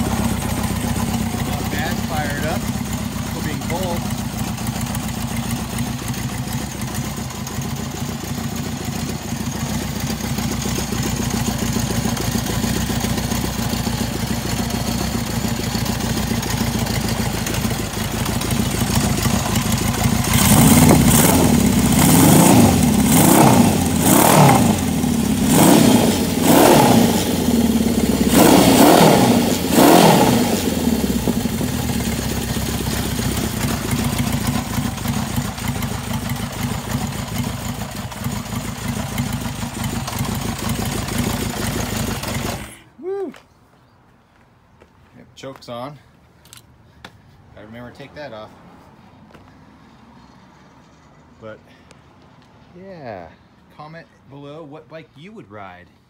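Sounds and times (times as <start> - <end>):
motorcycle engine idling: 0.0 - 42.8.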